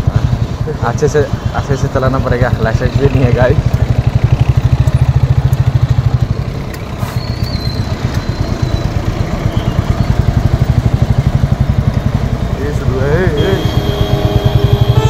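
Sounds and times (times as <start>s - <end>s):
motorcycle engine thumping: 3.4s - 12.6s.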